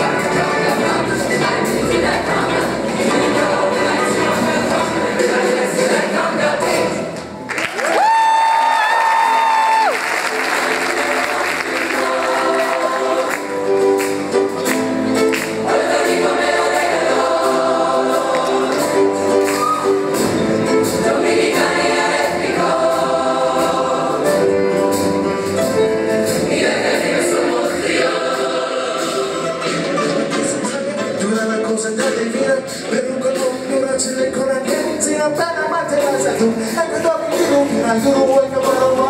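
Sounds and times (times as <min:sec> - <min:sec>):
youth choir singing in harmony: 0:00.0 - 0:07.5, 0:09.8 - 0:30.4.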